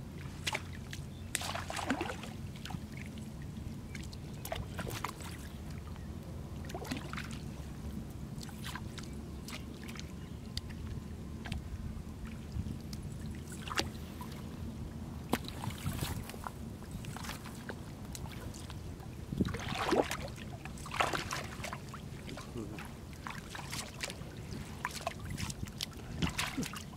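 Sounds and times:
small splashes: 0.2 - 2.8, 19.4 - 26.9
muddy water sloshing and dripping: 0.2 - 14.6, 15.2 - 26.9
steady low rumble: 2.2 - 26.6.

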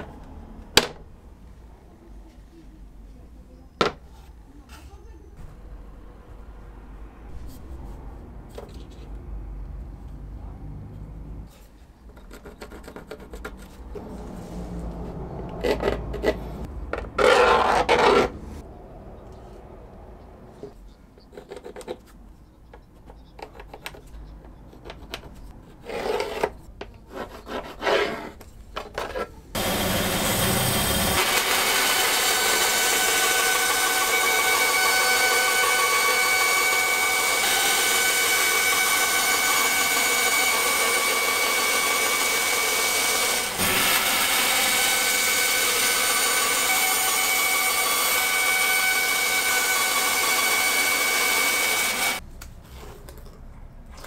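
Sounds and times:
band saw cutting plastic sheet: 12.5 - 18.6, 29.0 - 52.2
pencil scratching on plastic sheet: 24.7 - 28.4.

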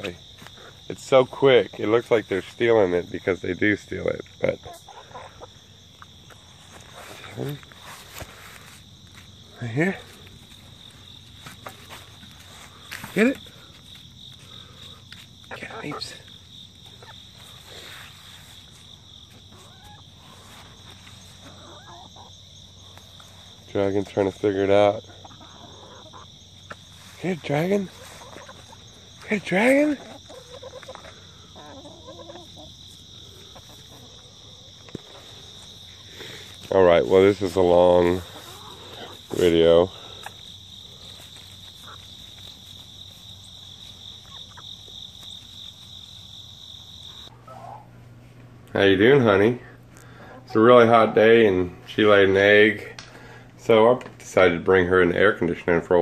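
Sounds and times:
insects chorus: 0.0 - 56.0
faint chicken calls: 4.4 - 9.2, 10.0 - 23.6, 24.8 - 48.2.

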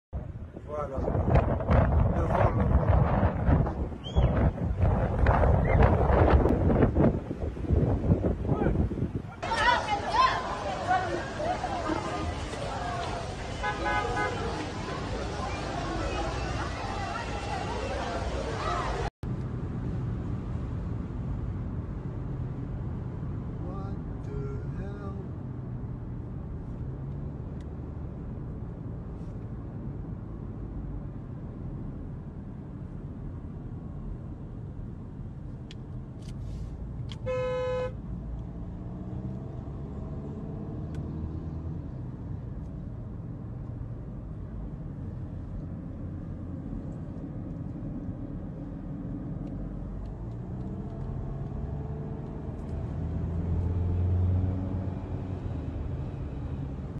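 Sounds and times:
low rumble: 0.1 - 9.2
car road and engine noise: 0.1 - 56.9
car horn toot: 13.5 - 14.5, 37.1 - 38.0.

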